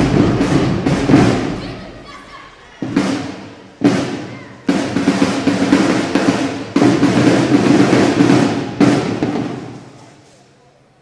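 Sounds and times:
bass drum hits: 0.0s - 2.0s
snare drum rolls: 0.0s - 10.2s.

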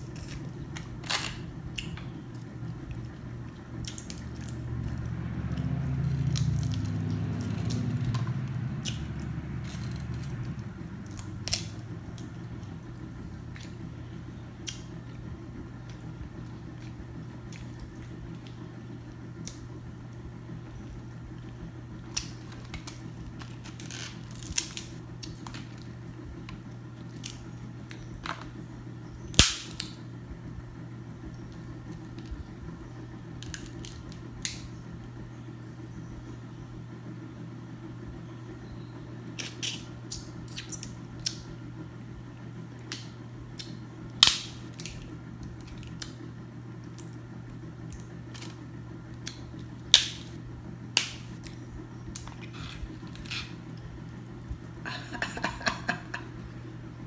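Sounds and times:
steady low hum: 0.0s - 57.0s
crab shells cracking: 42.9s - 50.4s.

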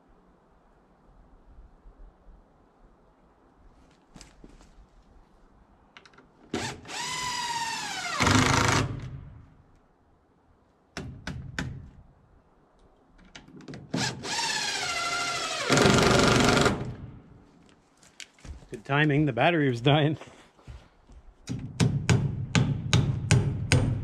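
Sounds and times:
cordless drill driving screws: 6.5s - 9.2s, 13.9s - 17.0s.

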